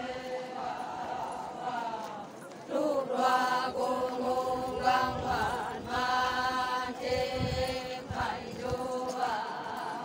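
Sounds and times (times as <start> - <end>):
group chanting in unison: 0.0 - 10.0.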